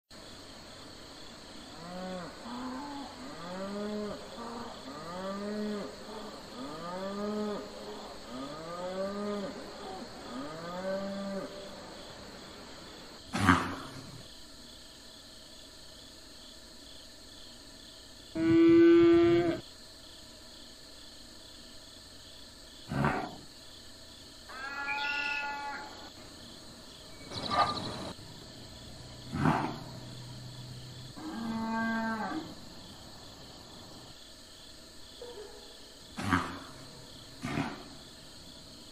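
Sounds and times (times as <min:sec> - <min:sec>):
cattle mooing: 0:31.2 - 0:32.6.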